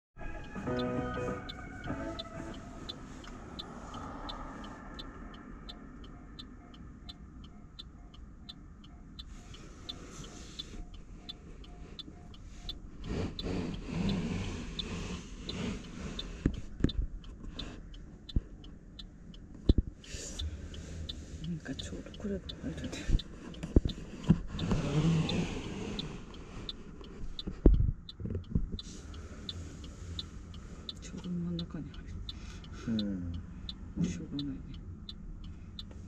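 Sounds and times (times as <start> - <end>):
level crossing bell ringing: 0.2 - 3.2
passing road traffic: 0.2 - 36.0.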